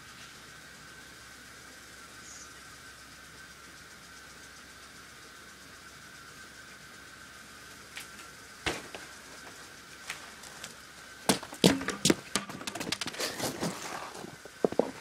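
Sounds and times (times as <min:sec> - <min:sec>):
unicycle landing on concrete: 0:07.9 - 0:15.0
boots stepping on concrete: 0:08.0 - 0:15.0
knocks scuffs and clicks: 0:08.0 - 0:15.0.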